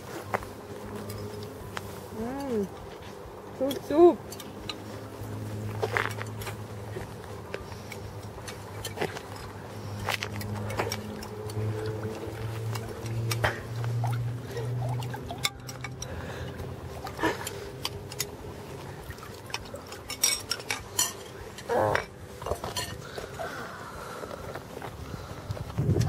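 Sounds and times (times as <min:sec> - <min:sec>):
spoons clinking against bowls: 0:15.1 - 0:16.2, 0:19.5 - 0:23.0.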